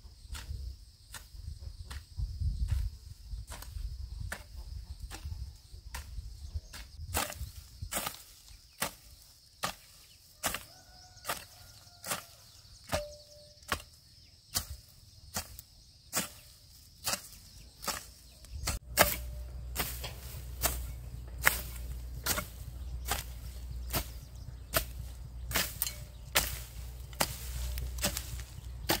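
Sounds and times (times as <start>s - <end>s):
low rumble: 18.6s - 29.0s.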